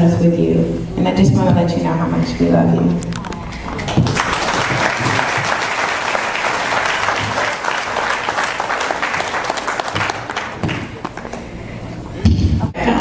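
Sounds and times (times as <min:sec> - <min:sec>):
crowd applauding: 0:03.5 - 0:11.6.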